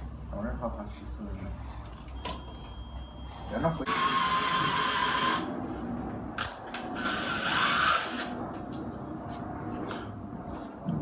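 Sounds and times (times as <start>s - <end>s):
power drill drilling into wall: 3.9s - 5.5s.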